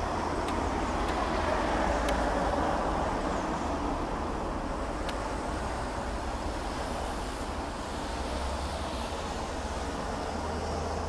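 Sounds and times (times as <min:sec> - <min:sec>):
road traffic rumble: 0:00.0 - 0:11.0
faint high ticks: 0:02.0 - 0:02.4, 0:05.0 - 0:05.3.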